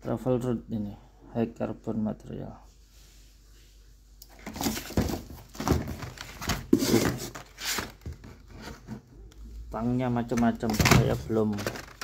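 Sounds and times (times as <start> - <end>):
plastic packs and cardboard rustling: 4.3 - 9.1, 10.2 - 12.0.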